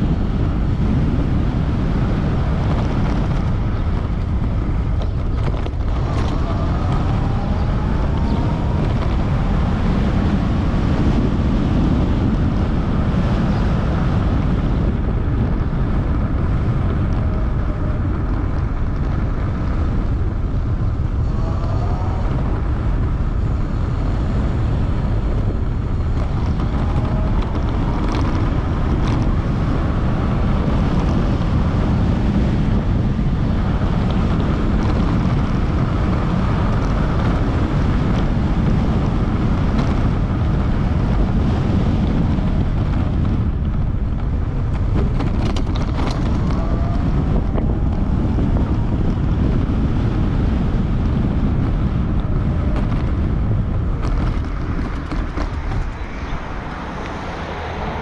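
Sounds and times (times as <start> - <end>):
wind buffeting microphone: 0.0 - 58.0.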